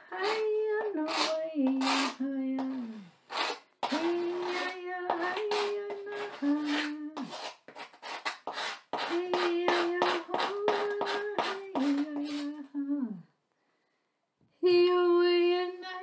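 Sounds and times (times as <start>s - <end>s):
tool scratching a blackboard: 0.2s - 12.5s.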